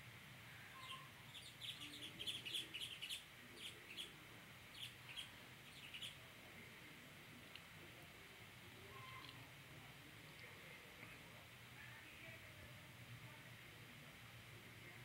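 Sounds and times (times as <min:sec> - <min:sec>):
finches chirping: 0:00.7 - 0:06.2.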